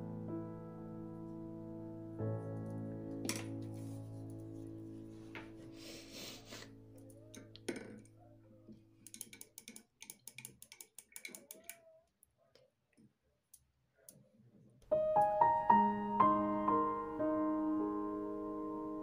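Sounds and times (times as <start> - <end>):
piano music: 0.0 - 7.3, 14.8 - 19.0.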